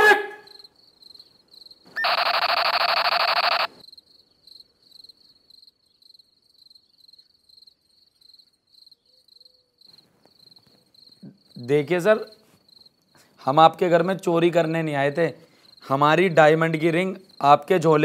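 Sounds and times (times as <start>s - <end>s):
crickets chirping: 0.4s - 13.4s, 15.5s - 15.9s, 17.0s - 17.6s
buzzer tone: 2.0s - 3.7s.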